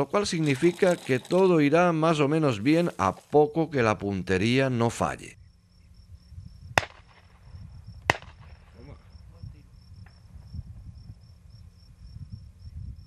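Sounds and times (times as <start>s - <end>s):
insects chirping: 5.3s - 13.0s
shotgun shot: 6.8s - 7.4s, 8.1s - 8.8s.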